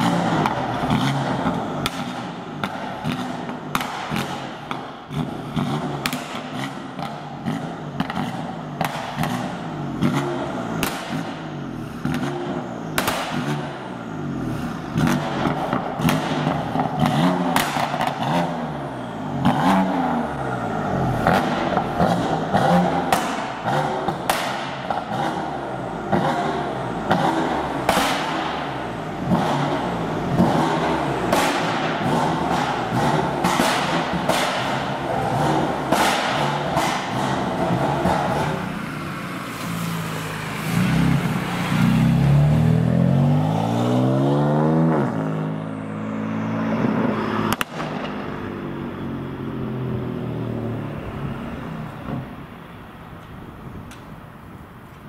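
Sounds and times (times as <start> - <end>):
car engine revving: 0.0 - 52.4
exhaust pops and cracks: 10.8 - 11.4, 13.0 - 13.7, 15.0 - 18.2, 47.5 - 48.2.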